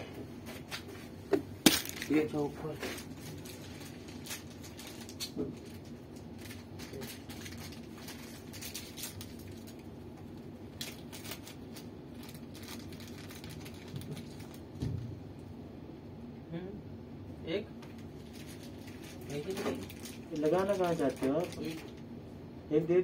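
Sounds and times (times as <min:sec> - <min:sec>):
low room hum: 0:00.0 - 0:23.0
plastic packet clicking and rustling: 0:01.7 - 0:02.2, 0:03.0 - 0:14.6, 0:17.9 - 0:22.0.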